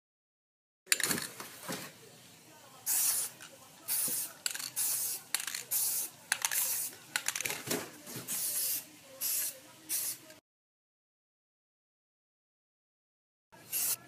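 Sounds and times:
spray can hissing: 0:02.8 - 0:07.4, 0:08.2 - 0:10.4, 0:13.6 - 0:14.0
spray can ball rattling: 0:02.9 - 0:07.6, 0:08.2 - 0:10.3, 0:13.7 - 0:14.0.

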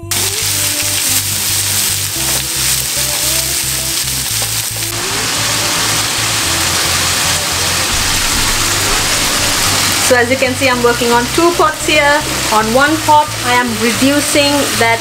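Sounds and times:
onions sizzling in oil: 0:00.0 - 0:15.0
background music with low beat: 0:07.9 - 0:12.5.

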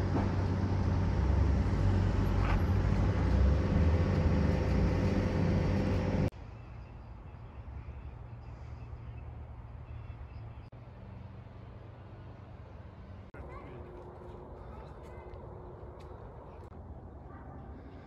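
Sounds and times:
tram rumbling: 0:00.0 - 0:06.3
outdoor background: 0:00.0 - 0:18.0.

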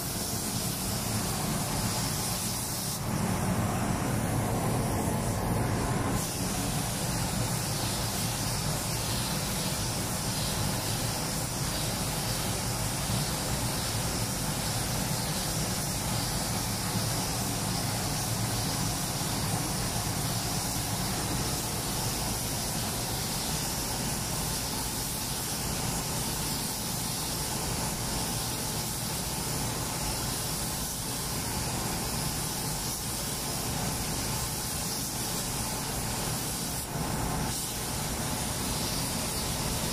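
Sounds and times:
steady low hum: 0:00.0 - 0:30.4
spray gun hissing air: 0:00.0 - 0:39.9.

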